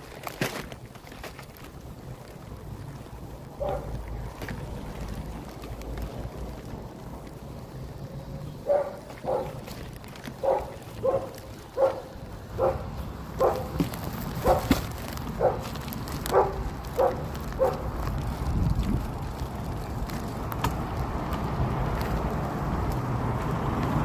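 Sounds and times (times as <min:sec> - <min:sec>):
dog barking: 0:03.6 - 0:03.9, 0:08.6 - 0:09.6, 0:10.4 - 0:13.7, 0:14.4 - 0:14.7, 0:15.4 - 0:15.6, 0:16.3 - 0:17.8
wind noise on microphone: 0:08.7 - 0:24.0.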